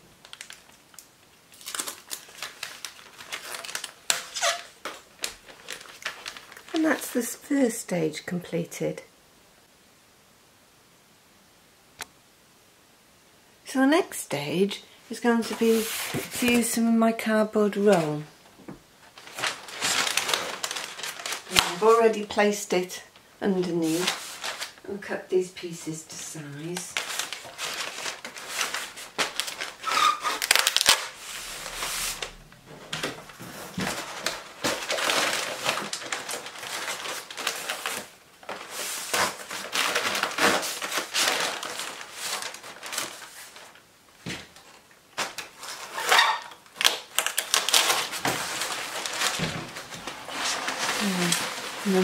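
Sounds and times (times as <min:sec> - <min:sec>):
packing tape ripping off dispenser: 0:00.2 - 0:06.8, 0:27.0 - 0:32.4, 0:45.2 - 0:49.3
cardboard and paper rustling: 0:01.5 - 0:07.3, 0:15.3 - 0:16.8, 0:19.0 - 0:22.5, 0:23.5 - 0:24.8, 0:26.6 - 0:52.0.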